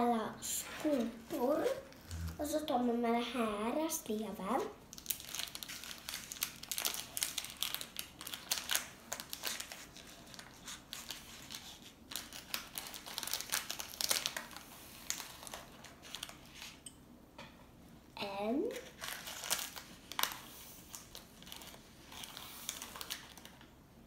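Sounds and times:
plastic bag crinkling: 4.9s - 16.8s, 18.7s - 23.8s.

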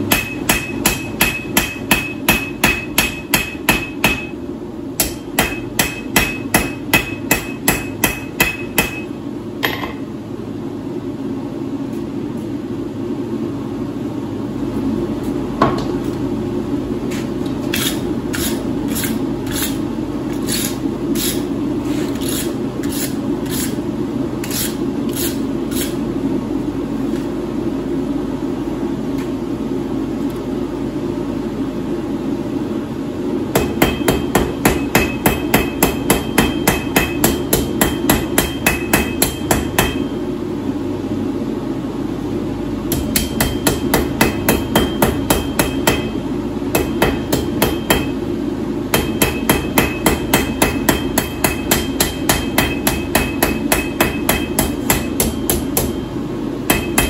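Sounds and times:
hammer ringing on anvil: 0.1s - 4.4s, 5.0s - 10.0s, 33.6s - 40.2s, 42.9s - 46.2s, 46.8s - 48.2s, 48.9s - 56.1s, 56.7s - 57.0s.

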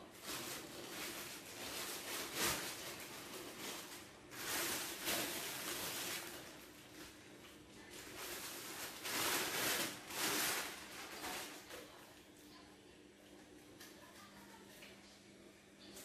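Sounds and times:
plastic wrap crinkling: 0.0s - 12.0s.

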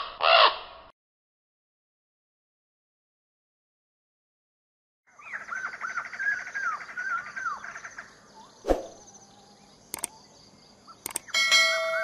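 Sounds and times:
quick clicks: 9.9s - 10.2s, 11.0s - 11.3s.

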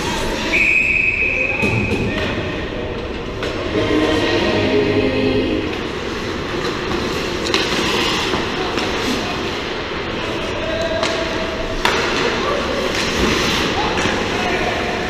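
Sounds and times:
skates scraping on ice: 5.9s - 10.4s, 11.6s - 14.9s.

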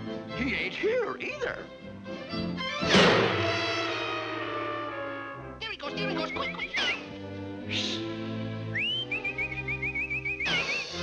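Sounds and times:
cartoon orchestral music: 0.3s - 11.0s
short high whistle notes: 8.7s - 11.0s
whistle swooping upward: 8.8s - 11.0s.

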